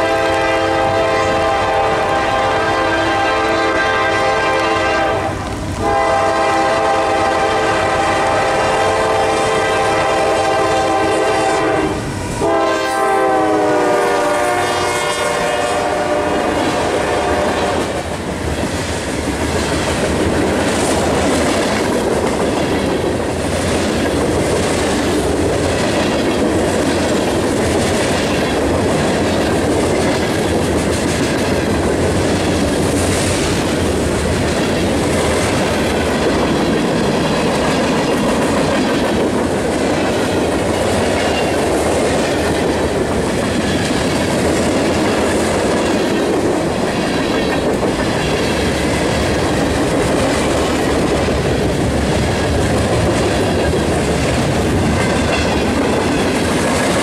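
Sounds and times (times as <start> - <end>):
locomotive air horn blasts: 0.0 - 18.0
wheels clacking over rail joints: 18.2 - 57.0.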